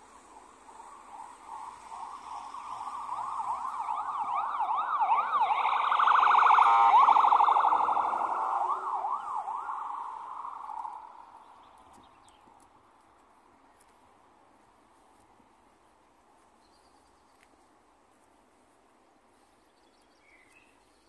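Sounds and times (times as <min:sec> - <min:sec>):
emergency vehicle siren: 0:00.0 - 0:12.0.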